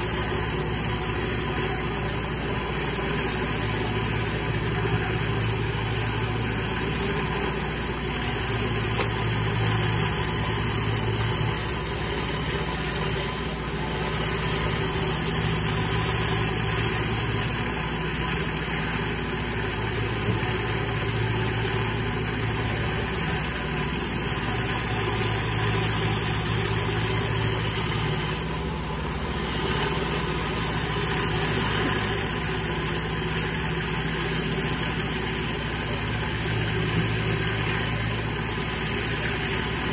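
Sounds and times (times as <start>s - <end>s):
hiss of water jets: 0.0s - 39.9s
pressure washer running: 0.0s - 39.9s.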